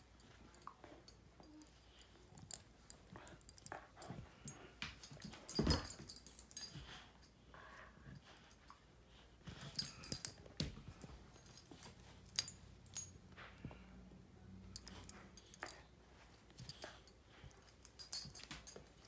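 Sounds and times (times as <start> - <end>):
dog collar tags jingling: 0.1 - 7.1, 9.5 - 13.2, 14.7 - 19.0.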